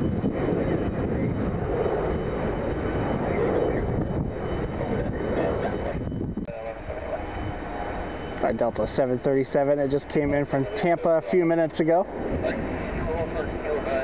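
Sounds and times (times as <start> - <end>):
jet airliner engine noise: 0.0 - 14.0.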